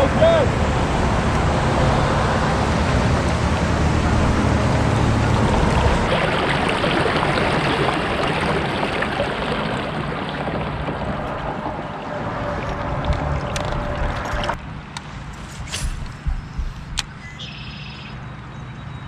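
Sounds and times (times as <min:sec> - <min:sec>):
water rushing along kayak hull: 0:00.0 - 0:15.3
low rumble: 0:10.3 - 0:17.6.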